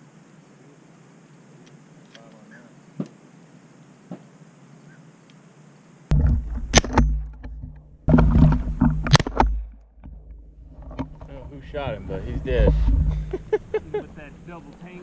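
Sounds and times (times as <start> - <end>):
heavy rumbling wind: 6.1 - 14.6.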